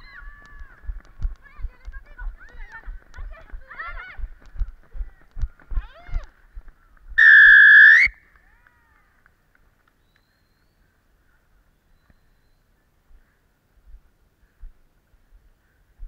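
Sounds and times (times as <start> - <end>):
referee's whistle blast: 7.2 - 8.2.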